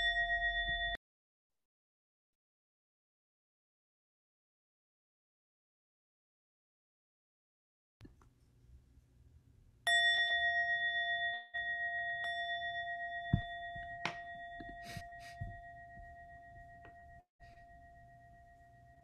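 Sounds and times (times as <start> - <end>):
meditation bell ringing: 0.0 - 1.0, 9.9 - 19.0.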